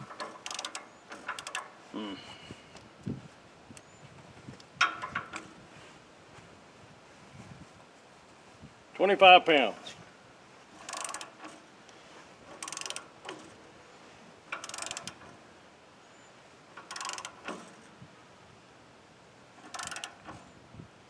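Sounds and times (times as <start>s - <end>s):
ratchet wrench clicking: 0.0s - 1.7s, 10.8s - 11.5s, 12.5s - 13.5s, 14.5s - 15.2s, 16.8s - 17.7s, 19.6s - 20.4s.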